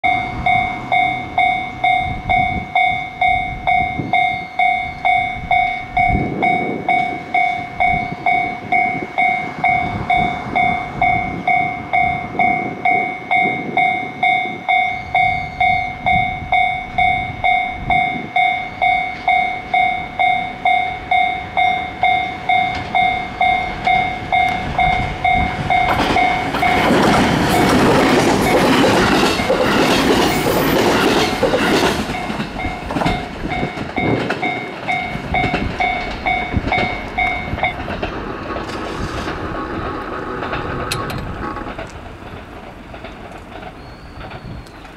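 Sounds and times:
level crossing bell ringing: 0.0 - 27.0, 32.1 - 37.9
train passing: 0.0 - 44.9
wheels clattering over rail joints: 0.0 - 44.9.

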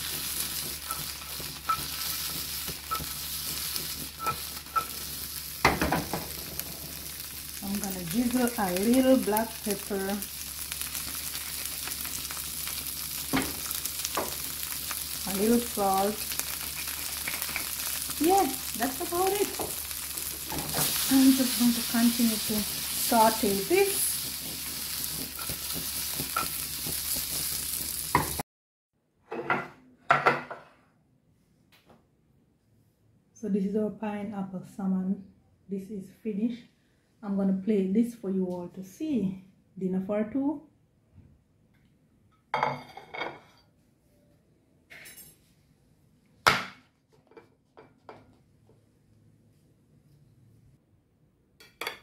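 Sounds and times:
vegetables sizzling in a frying pan: 0.0 - 28.4
stirring scrapes and taps: 0.1 - 5.1, 24.1 - 28.4.

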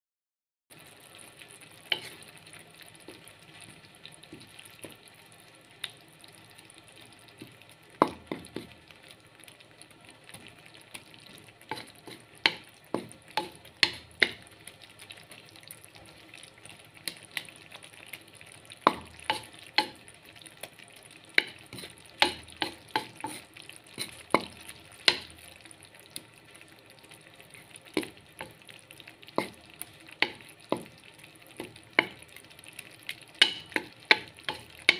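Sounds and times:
greens sizzling in oil: 0.7 - 34.9
wooden spatula scraping metal pan: 1.9 - 2.2, 21.4 - 24.5.

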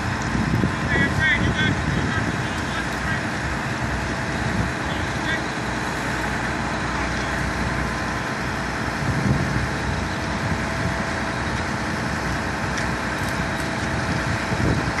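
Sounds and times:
heavy diesel truck engines running: 0.0 - 15.0.

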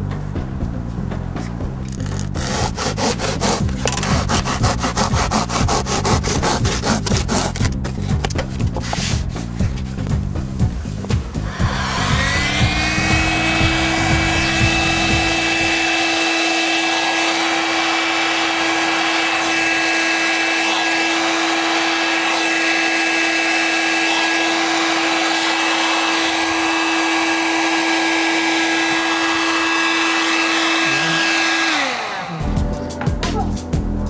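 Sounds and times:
power tool motor whining: 11.4 - 32.7.

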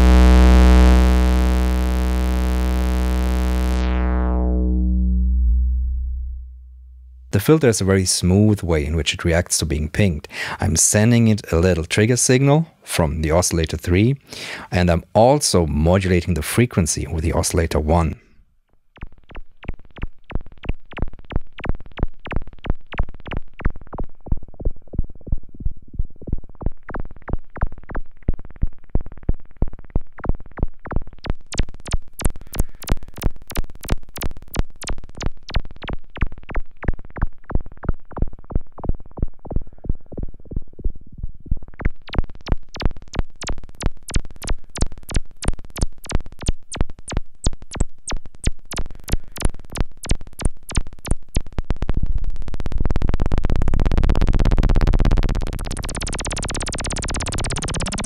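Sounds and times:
synthesizer plucked tones: 0.0 - 7.4, 41.8 - 58.0.

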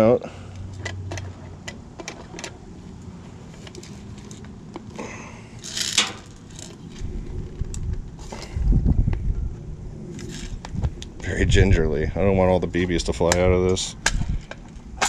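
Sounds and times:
magazine scraping rattle: 5.6 - 7.8, 10.2 - 10.7.

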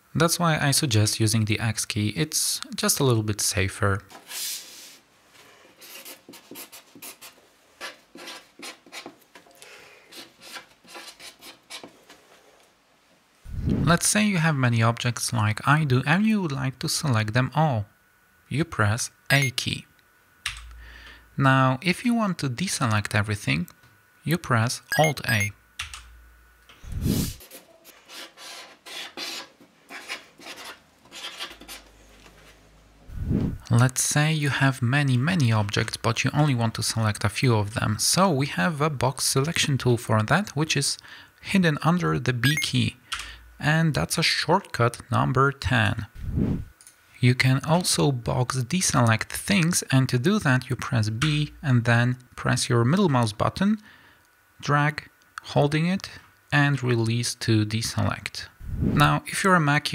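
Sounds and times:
marker writing on card: 5.8 - 9.1
marker scratching on paper: 5.8 - 9.2, 10.1 - 11.9, 27.0 - 31.9.

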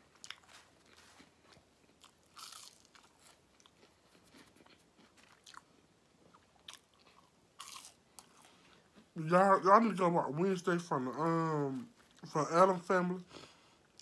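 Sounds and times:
faint chewing: 0.0 - 9.2.

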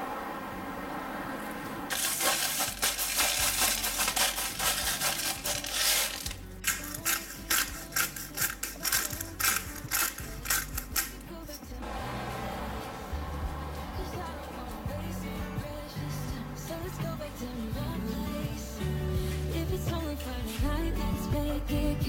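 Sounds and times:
salt grinder crunching: 1.9 - 11.3
pepper mill grinding: 1.9 - 11.6.

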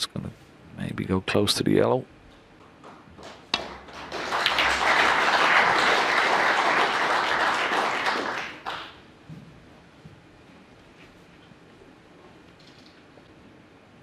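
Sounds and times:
audience applauding: 2.8 - 9.0.

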